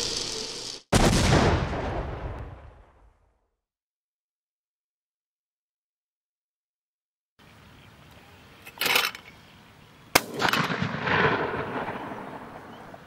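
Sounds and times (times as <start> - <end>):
shotgun shot echoing: 10.2 - 12.5.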